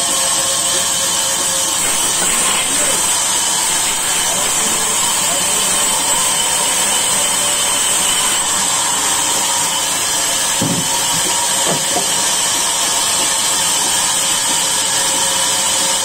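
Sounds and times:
band saw cutting log: 0:00.0 - 0:16.0.

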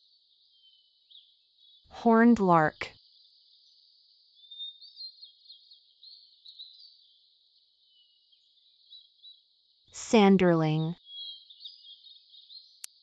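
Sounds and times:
lark twittering song: 0:11.0 - 0:12.8.

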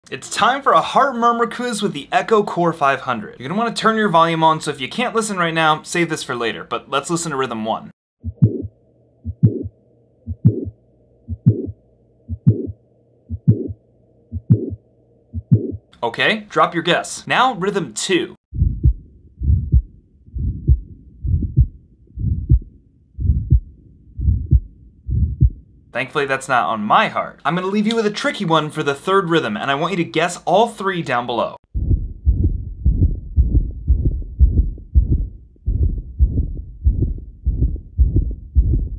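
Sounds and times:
heartbeat thumps: 0:08.2 - 0:15.9, 0:18.5 - 0:25.7, 0:31.7 - 0:38.9.

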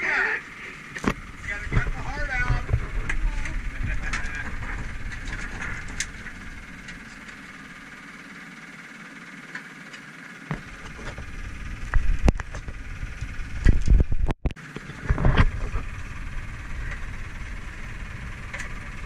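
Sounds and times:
boat engine running: 0:00.0 - 0:19.0
knocks and thumps on deck: 0:10.5 - 0:11.2.

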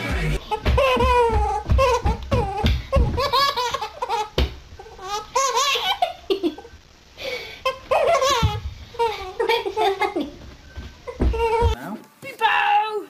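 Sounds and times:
baby laughing: 0:00.4 - 0:06.7, 0:07.7 - 0:10.2.

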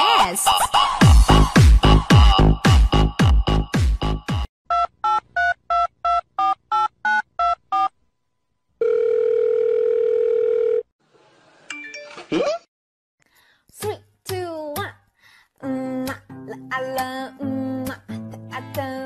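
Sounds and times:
dance music beat: 0:00.0 - 0:04.5
telephone line tone: 0:08.8 - 0:10.9.

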